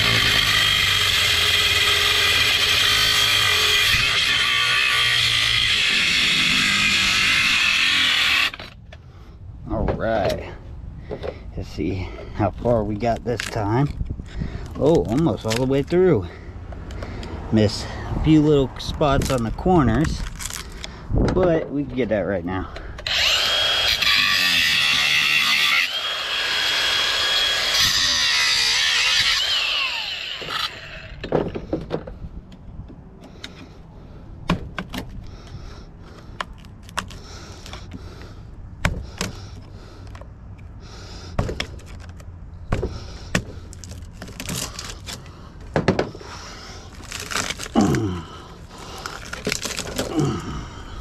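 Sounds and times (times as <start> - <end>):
angle grinder cutting steel: 0.0 - 8.8, 23.0 - 31.2.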